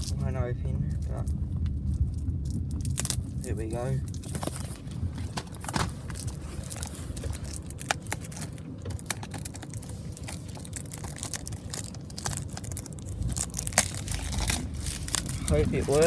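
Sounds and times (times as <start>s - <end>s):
microphone handling rumble: 0.0s - 16.0s
plastic case clicking and rustling: 4.2s - 13.0s.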